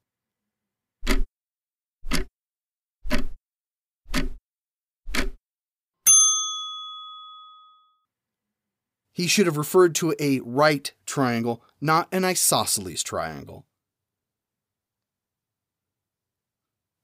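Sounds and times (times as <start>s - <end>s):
clock ticks: 1.0s - 1.3s, 2.0s - 2.3s, 3.1s - 3.4s, 4.1s - 4.4s, 5.1s - 5.4s
bell ding: 6.0s - 8.1s.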